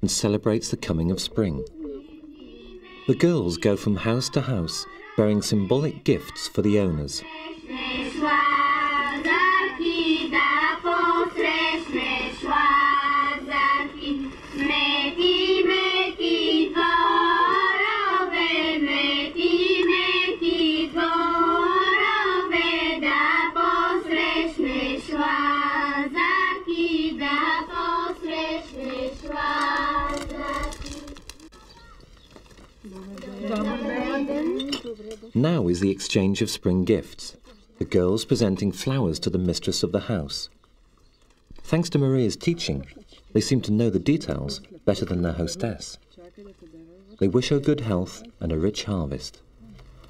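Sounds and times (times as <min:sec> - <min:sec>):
girls singing folk song: 0:01.9 - 0:31.2.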